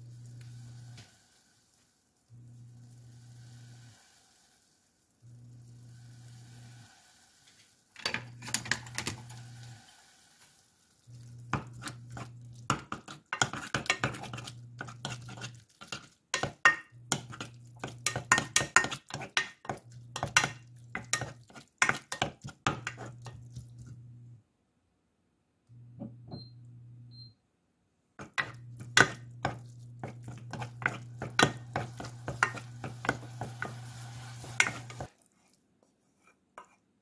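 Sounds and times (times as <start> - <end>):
low steady hum: 0.0 - 1.0, 25.6 - 27.4
light sizzle: 0.0 - 24.4, 28.2 - 35.6
wooden spoon clacking and scraping pot: 11.2 - 24.0, 28.2 - 36.8.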